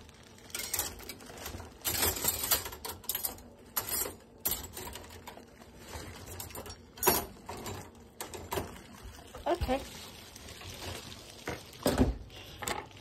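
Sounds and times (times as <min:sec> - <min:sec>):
cutlery and dishes clattering: 0:00.6 - 0:05.4, 0:06.2 - 0:08.7.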